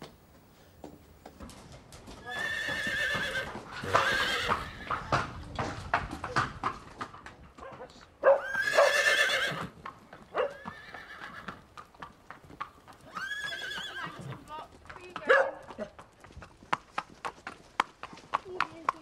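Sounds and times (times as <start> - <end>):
hooves clip-clopping on hard yard: 0.0 - 19.0
horse whinnying: 2.2 - 5.1, 8.3 - 9.8, 10.4 - 11.6, 13.1 - 14.4.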